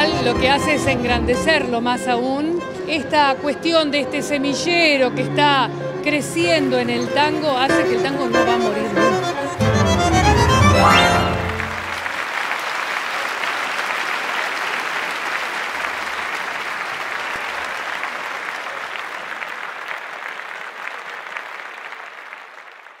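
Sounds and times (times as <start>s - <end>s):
audience applauding: 9.7s - 23.0s.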